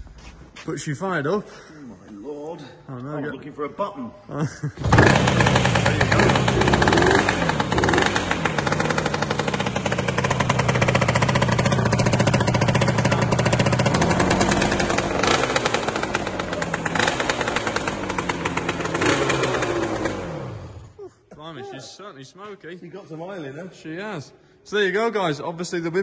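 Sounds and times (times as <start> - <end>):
two-stroke motorcycle engine revving: 4.8 - 21.0.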